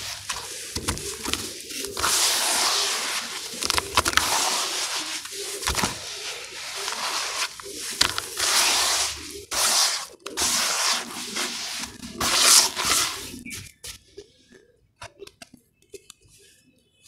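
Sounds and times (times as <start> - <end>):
hands squishing wet ash: 0.0 - 13.5.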